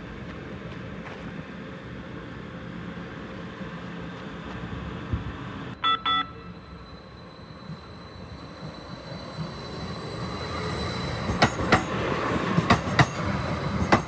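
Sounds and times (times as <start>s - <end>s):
train rumbling past: 0.0s - 14.0s
short electronic beeps: 5.8s - 6.9s.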